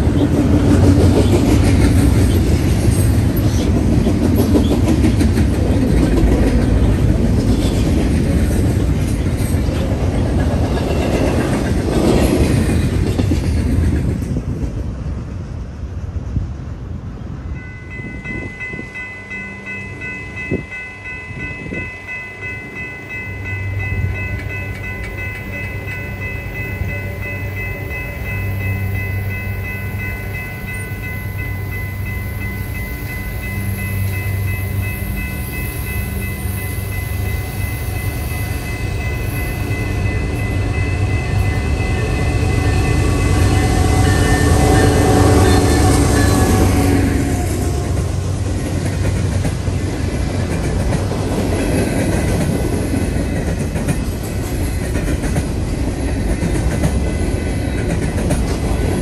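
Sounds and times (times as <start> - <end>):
diesel locomotive engine rumble: 0.0 - 59.0
steady high tone: 17.5 - 48.3.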